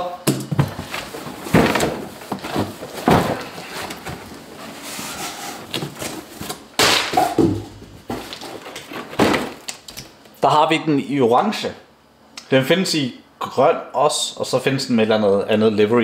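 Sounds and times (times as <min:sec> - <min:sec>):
cardboard scraping and rustling: 0:00.5 - 0:06.7, 0:07.3 - 0:09.6
knocks on box: 0:06.8 - 0:07.8.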